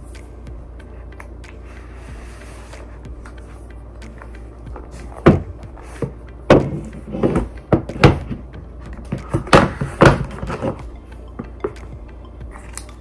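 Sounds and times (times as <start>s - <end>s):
cardboard box knocking on table: 5.2s - 8.4s.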